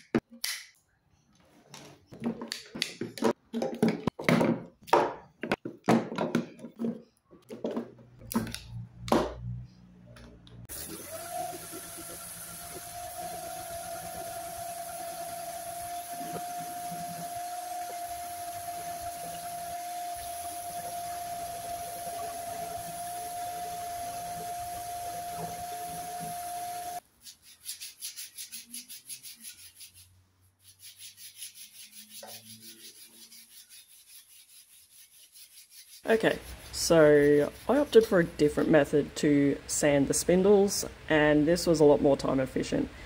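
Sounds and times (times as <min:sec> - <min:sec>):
orbital sander whining: 0:10.8 - 0:27.0
sandpaper rubbing on wood: 0:25.3 - 0:38.2.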